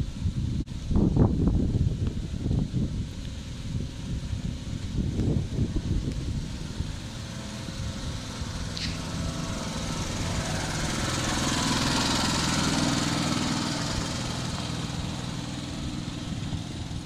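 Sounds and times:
small locomotive engine passing: 5.4 - 17.0.

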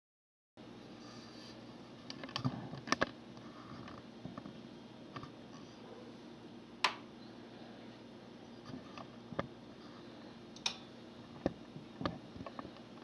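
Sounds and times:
faint steady hum: 0.6 - 13.0
small clicks and knocks: 2.0 - 3.2.

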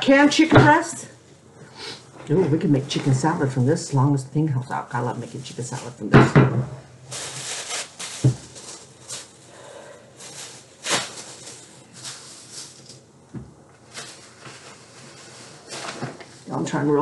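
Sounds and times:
plastic bags rustling and crinkling: 4.8 - 17.0.

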